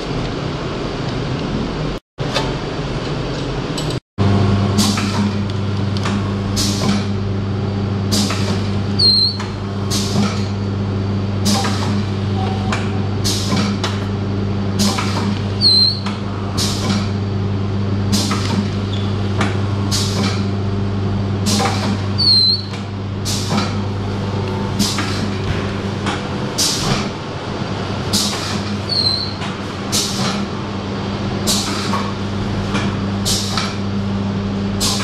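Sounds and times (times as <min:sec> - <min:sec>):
machine motor hum: 0:00.0 - 0:35.0.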